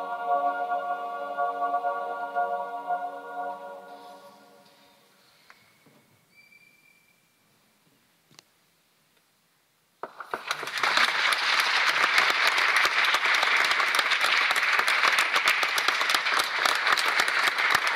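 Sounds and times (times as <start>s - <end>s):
audience applause: 10.0s - 17.9s.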